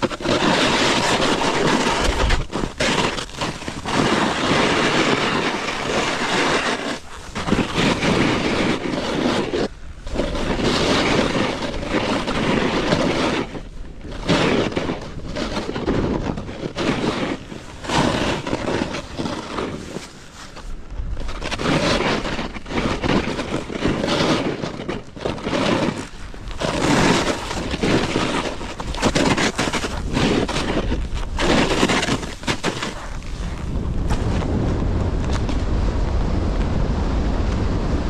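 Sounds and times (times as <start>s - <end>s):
snowboard edge scraping snow: 0.0s - 38.0s
wind buffeting microphone: 0.0s - 38.0s.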